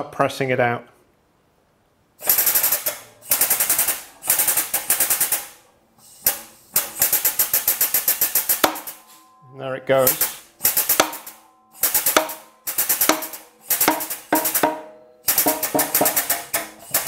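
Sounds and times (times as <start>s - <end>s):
hydraulic press pump chattering: 10.0s - 17.0s.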